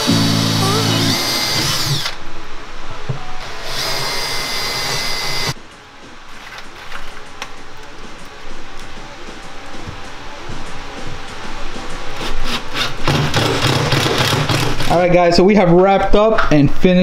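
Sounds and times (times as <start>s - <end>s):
drill motor whining: 0.0s - 2.2s, 3.4s - 5.6s.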